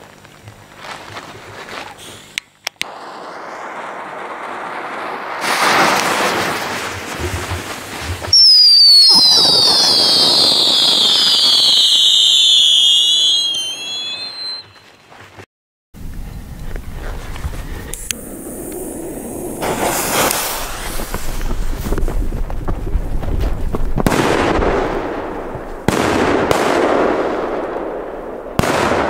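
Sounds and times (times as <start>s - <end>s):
fireworks hissing rush: 1.9s - 14.8s, 17.3s - 25.9s
shrill firework whistles: 2.8s - 6.8s, 8.3s - 15.0s, 18.0s - 22.0s.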